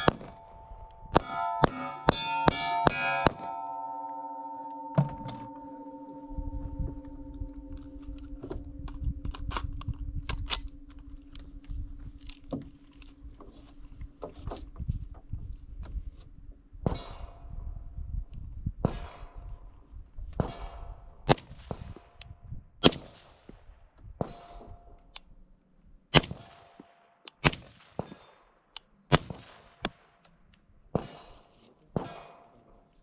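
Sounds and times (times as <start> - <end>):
rifle shots: 0.0 - 3.5
short ringing tone: 0.0 - 9.2.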